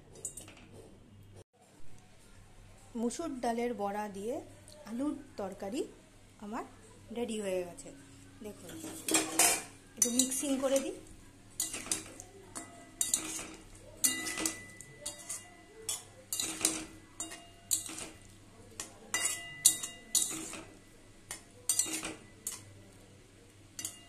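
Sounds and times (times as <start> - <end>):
spatula scraping metal pan: 11.6 - 20.8, 21.7 - 22.7.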